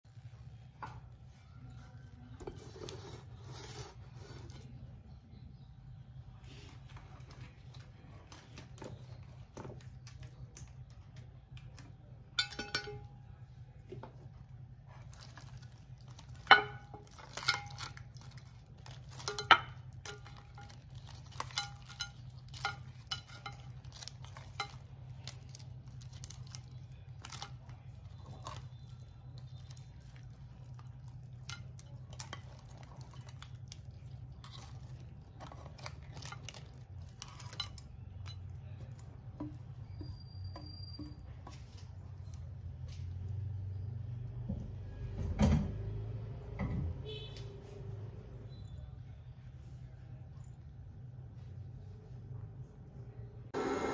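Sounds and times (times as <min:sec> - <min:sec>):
spatula scraping pan and plate: 0:02.4 - 0:04.8
crab shells clattering: 0:15.2 - 0:40.3.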